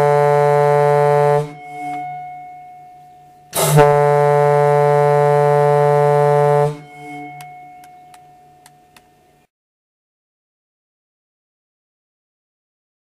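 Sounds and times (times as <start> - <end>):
ship horn blast: 0.0 - 8.6.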